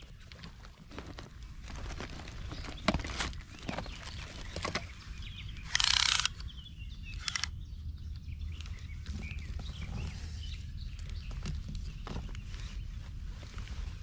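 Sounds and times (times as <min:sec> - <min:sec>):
birds chirping: 0:02.2 - 0:13.2.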